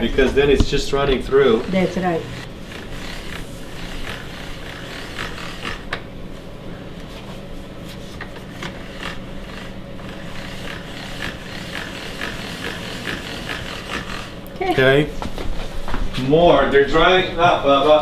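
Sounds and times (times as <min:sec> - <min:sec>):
dough scraping on work surface: 0:00.0 - 0:06.4, 0:07.1 - 0:14.3.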